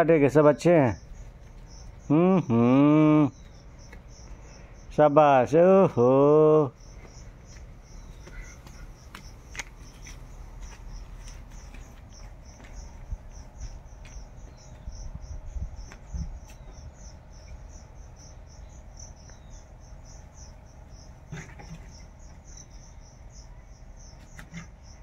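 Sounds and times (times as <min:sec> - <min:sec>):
cricket chirping: 0:00.0 - 0:25.0.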